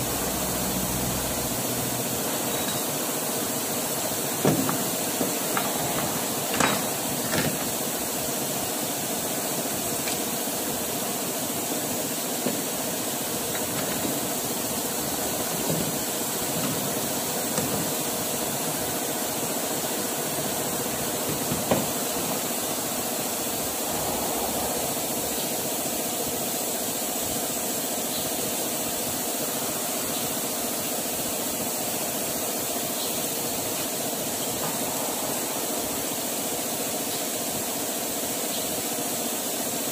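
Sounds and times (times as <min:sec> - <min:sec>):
machinery drone: 0:00.0 - 0:04.5, 0:21.9 - 0:27.6, 0:33.4 - 0:37.9
metal clanks and knocks: 0:04.4 - 0:07.8
faint hum: 0:22.6 - 0:26.9.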